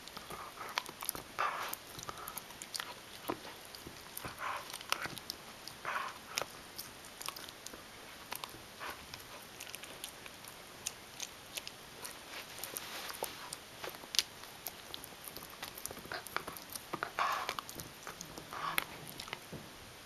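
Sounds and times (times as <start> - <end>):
dog gnawing a chew: 0.0 - 19.6.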